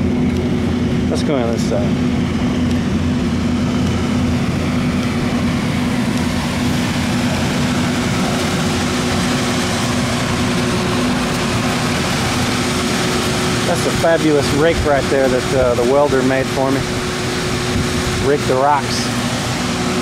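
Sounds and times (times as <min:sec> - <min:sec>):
machinery drone: 0:00.0 - 0:20.0.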